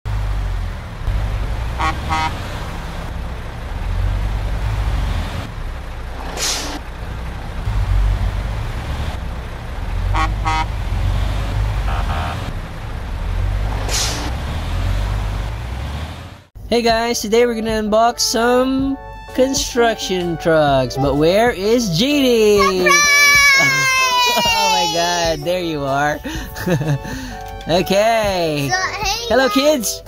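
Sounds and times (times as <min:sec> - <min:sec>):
diesel truck engine rumble: 0:00.0 - 0:16.7, 0:20.0 - 0:30.0
truck horn double toot: 0:01.8 - 0:02.5, 0:10.1 - 0:10.8, 0:11.8 - 0:12.5
air-brake hiss: 0:06.3 - 0:06.8.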